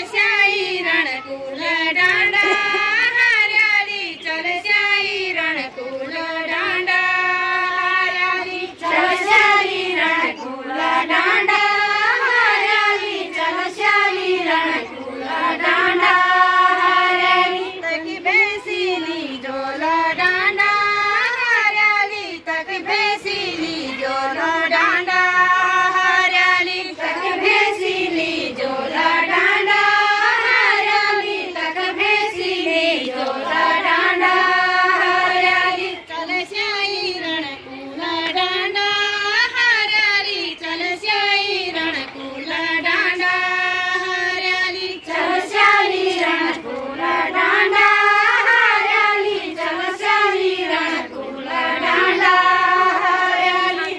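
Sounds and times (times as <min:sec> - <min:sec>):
women singing in chorus: 0:00.0 - 0:53.9.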